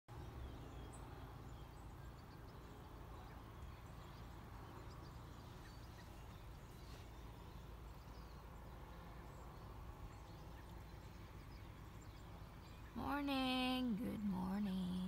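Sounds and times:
faint bird chirps: 0.1s - 15.0s.

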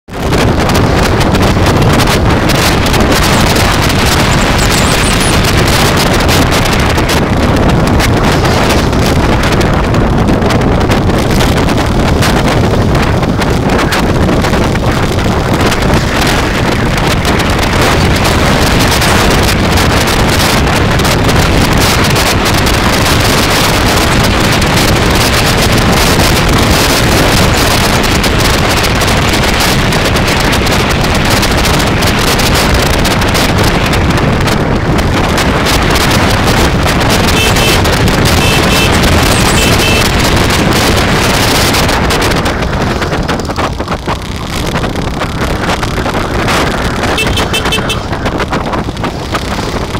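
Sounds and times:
road and traffic noise: 0.0s - 49.9s
wind rushing over microphone: 0.0s - 49.9s
short high beeps: 4.3s - 5.4s, 37.3s - 37.8s, 38.4s - 40.1s.

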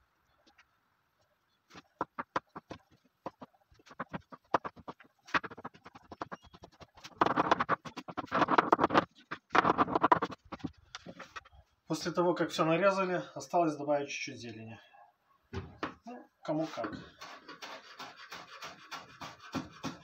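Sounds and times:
knife chopping on wooden board: 17.6s - 20.0s.

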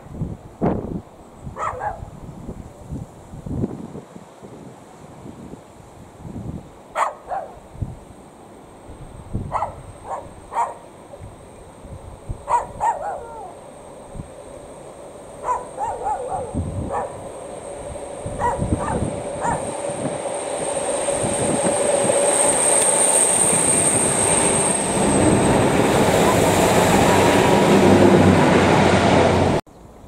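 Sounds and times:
wind rumble on microphone: 0.0s - 6.8s, 7.7s - 8.1s, 8.9s - 13.3s, 15.4s - 22.7s
dog barking: 1.6s - 2.1s, 7.0s - 7.6s, 9.5s - 10.9s, 12.5s - 13.6s, 15.4s - 17.2s, 18.4s - 19.7s
diesel train hum: 4.8s - 30.0s.

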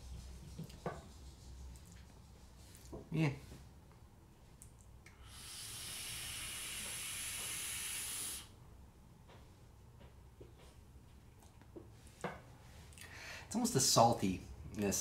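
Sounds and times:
electronic cigarette airy hiss: 5.1s - 8.6s.

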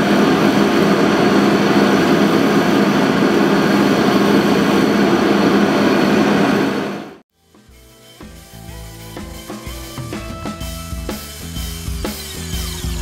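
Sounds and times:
heater fan and flame roar: 0.0s - 7.2s.

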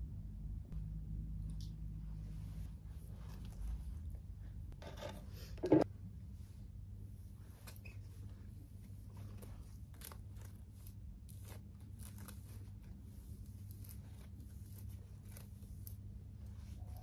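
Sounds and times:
low hum: 0.0s - 17.0s
rustling and crackling handling: 7.4s - 17.0s.

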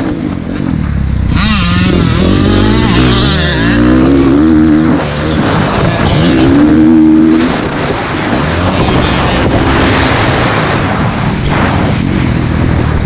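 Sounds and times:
motocross bike engine revving: 0.6s - 11.7s.

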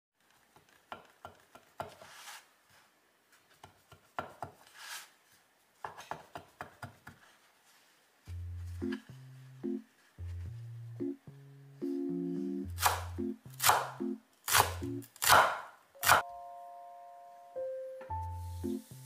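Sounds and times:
piano music: 8.3s - 15.0s, 16.0s - 19.0s.

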